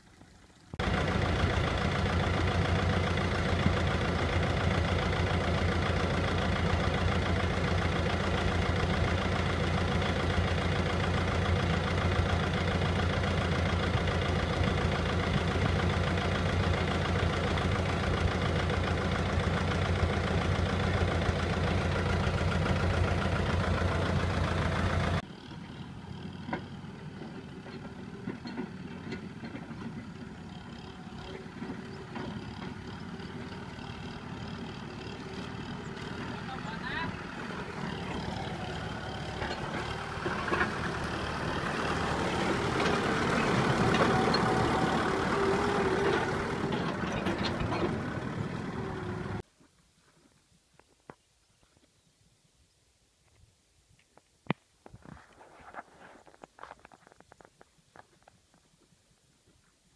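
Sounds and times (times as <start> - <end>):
quieter tractor engine: 0.0 - 49.5
tractor engine running loud: 0.5 - 49.4.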